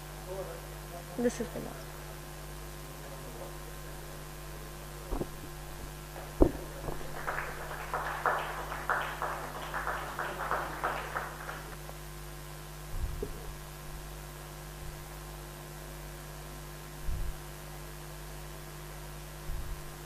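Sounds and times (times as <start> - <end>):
electrical mains hum: 0.0 - 20.0
sharp thumps: 5.1 - 7.2
people clapping: 5.1 - 12.0.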